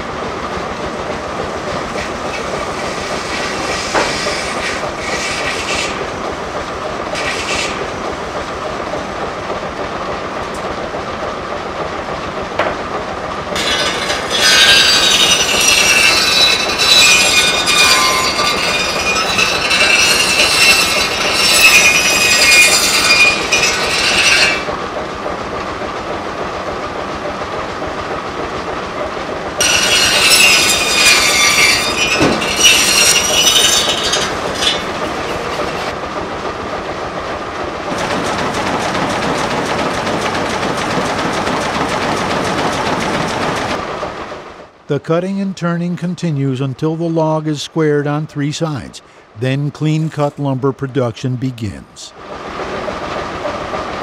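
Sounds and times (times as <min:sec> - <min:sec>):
machinery clattering rumble: 0:00.0 - 0:47.4
circular saw whining in wood: 0:01.7 - 0:06.1, 0:13.6 - 0:24.9, 0:29.5 - 0:36.0.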